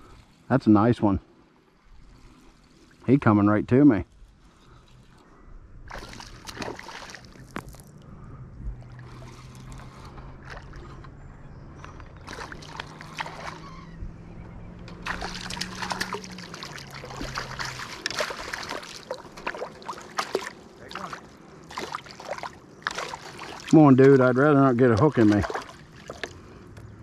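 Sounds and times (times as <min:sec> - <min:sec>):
fish splashing in water: 0:05.9 - 0:07.9, 0:08.7 - 0:11.0, 0:12.2 - 0:13.8, 0:14.9 - 0:26.6.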